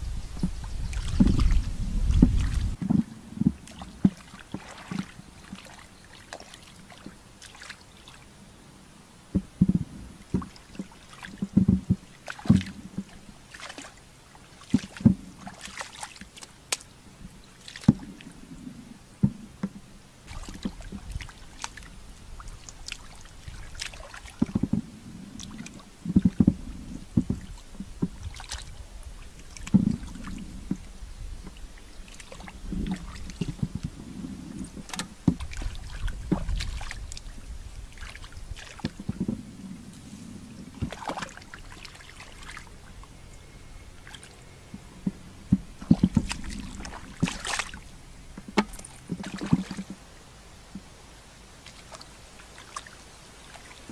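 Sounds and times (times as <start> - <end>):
hands splashing in muddy water: 0.4 - 2.8, 3.6 - 8.2, 12.2 - 12.8, 13.5 - 16.9, 17.6 - 18.2, 20.3 - 24.7, 27.3 - 28.8, 34.6 - 37.3, 40.8 - 42.8, 44.0 - 44.4, 45.8 - 47.8, 48.5 - 50.0.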